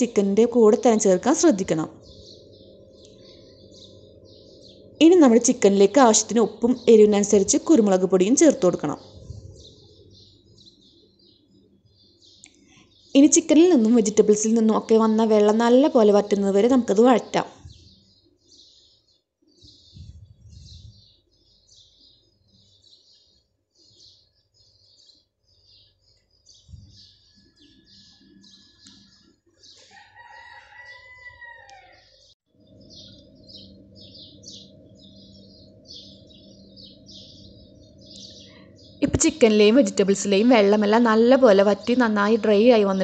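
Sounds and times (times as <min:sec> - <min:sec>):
rooster crowing: 0:29.8 - 0:32.3.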